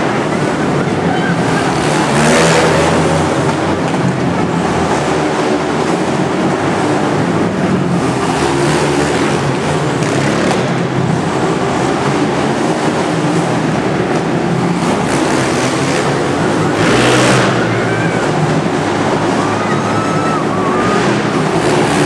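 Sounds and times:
quad engines revving: 0.0 - 22.0.

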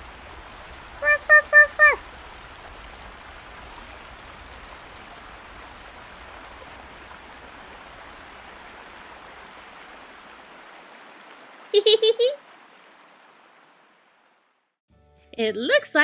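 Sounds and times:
water spraying hiss: 0.0 - 12.3.

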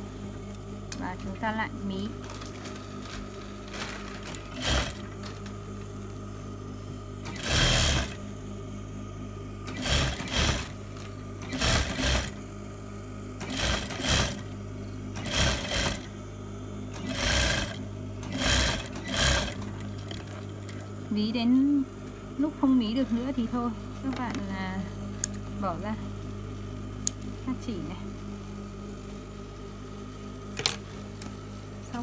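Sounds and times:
steady low hum: 0.0 - 32.0
sewing machine stitching: 3.7 - 5.1, 7.3 - 8.2, 9.7 - 10.8, 11.4 - 12.4, 13.4 - 14.4, 15.2 - 16.1, 17.0 - 20.4.

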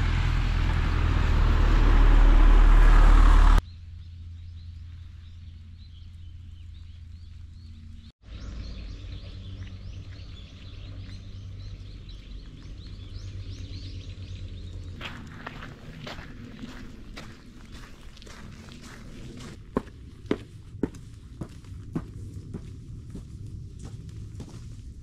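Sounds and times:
low engine-like drone: 0.0 - 25.0
steady low hum: 0.0 - 25.0
small birds chirping: 3.7 - 19.1.

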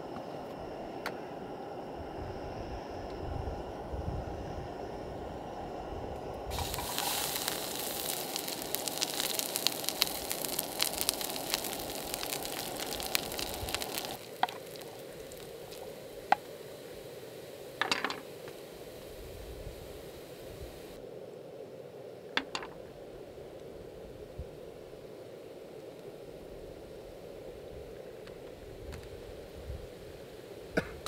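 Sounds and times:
oil popping: 6.5 - 16.9
oil sizzling in a pan: 6.5 - 21.0.

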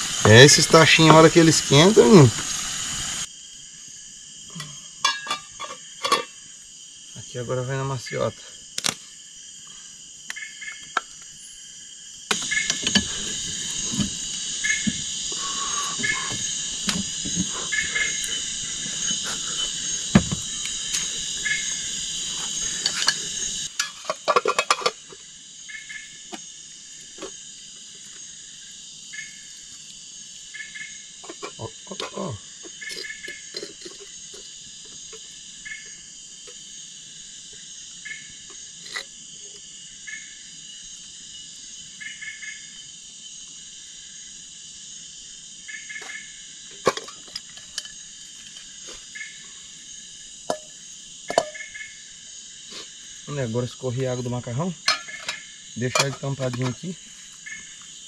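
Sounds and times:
short double insect call: 0.0 - 47.1, 47.7 - 58.0
crickets and insects chirping: 0.0 - 58.0
cookware knocking and clinking: 5.0 - 6.3, 51.3 - 51.6, 54.9 - 56.7.

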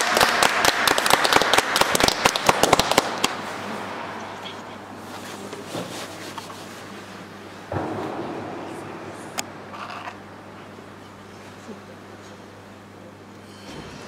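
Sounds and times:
audience applause: 0.0 - 3.4
faint hall hum: 0.0 - 14.0.

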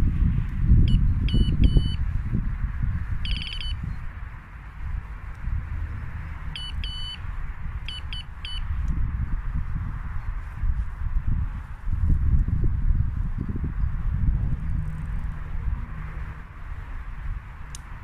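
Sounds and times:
bite alarm beeping: 0.9 - 2.0, 3.2 - 3.9, 6.6 - 7.2, 7.8 - 8.7
low rumbling handling noise: 7.3 - 18.0.

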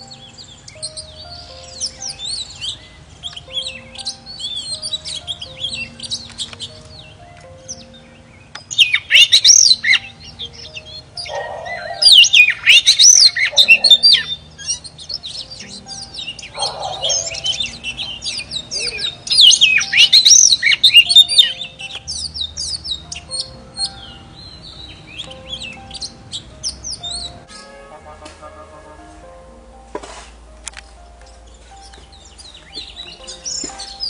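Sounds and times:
bird singing rich whistles: 7.8 - 24.2.

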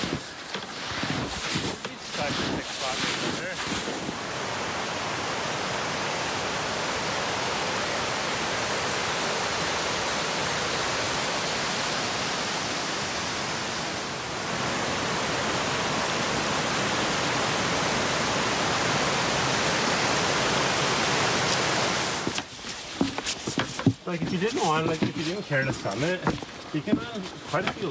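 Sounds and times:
creek rushing over rocks: 0.0 - 27.9.

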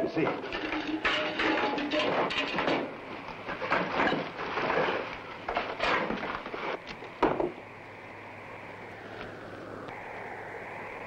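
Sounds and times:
objects clattering and knocking: 0.0 - 7.6
steady low hiss: 0.0 - 11.0.

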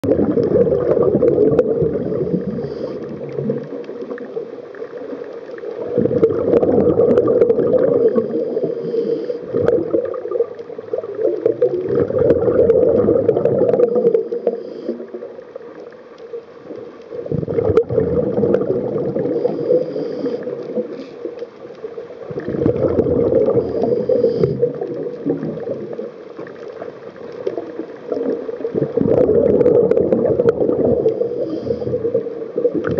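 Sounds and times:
exhaled bubbles gurgling: 0.0 - 32.9
scuba regulator breathing: 1.9 - 3.4, 7.8 - 9.8, 13.8 - 15.3, 19.1 - 21.5, 23.4 - 24.9, 31.0 - 32.4.

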